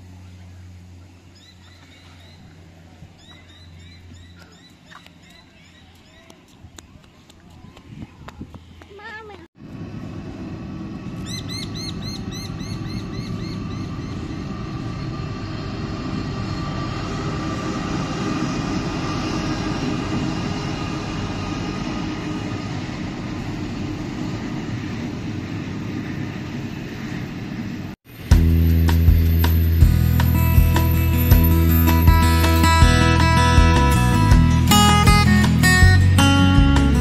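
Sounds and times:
bird chirping: 1.1s - 6.6s, 11.2s - 15.2s
freight train rumbling on rails: 9.6s - 37.0s.

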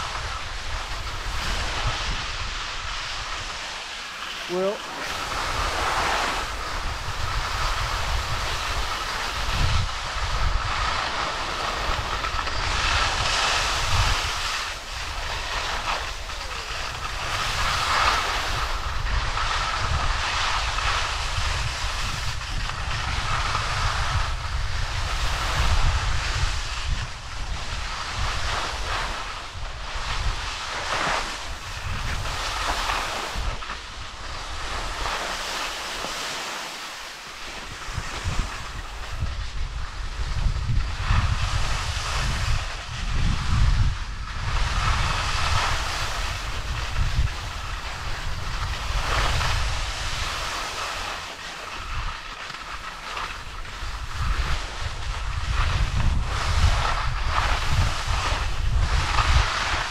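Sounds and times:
skis scraping over snow: 0.0s - 59.9s
wind buffeting microphone: 0.0s - 59.9s.

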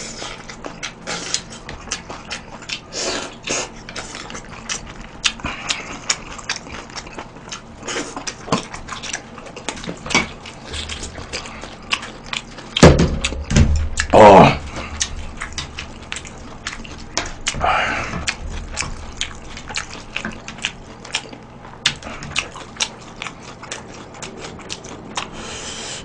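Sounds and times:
man slurping and chewing noodles: 0.0s - 26.0s.

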